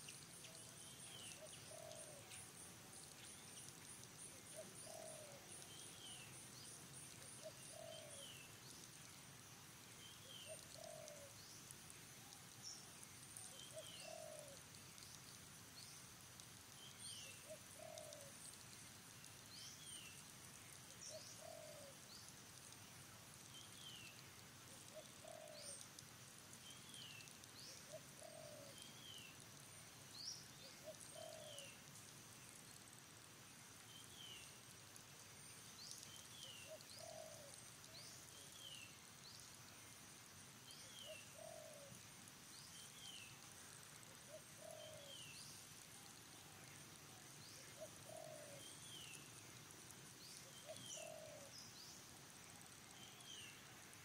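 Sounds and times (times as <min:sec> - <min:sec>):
faint bird calls: 0:04.2 - 0:06.4, 0:07.3 - 0:08.5, 0:10.2 - 0:11.4, 0:24.8 - 0:25.9, 0:26.8 - 0:29.4, 0:30.6 - 0:31.8, 0:36.3 - 0:38.8, 0:44.1 - 0:49.3, 0:50.3 - 0:51.7.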